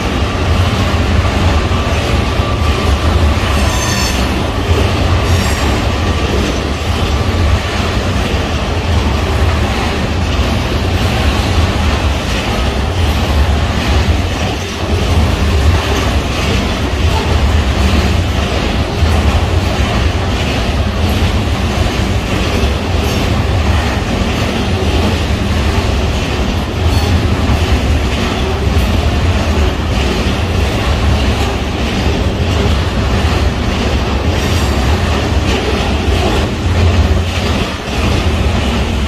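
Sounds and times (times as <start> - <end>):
freight train rumbling on rails: 0.0 - 39.0
high wheel squeal: 3.6 - 4.4.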